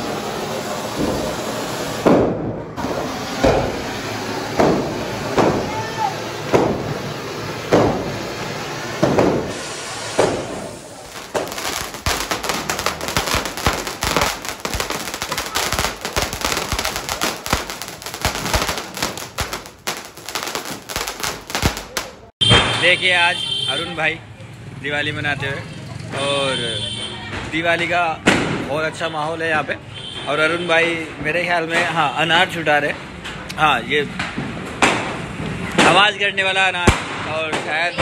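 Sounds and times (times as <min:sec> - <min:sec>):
firecracker bangs: 0:00.1 - 0:23.4, 0:28.2 - 0:28.9, 0:34.2 - 0:38.0.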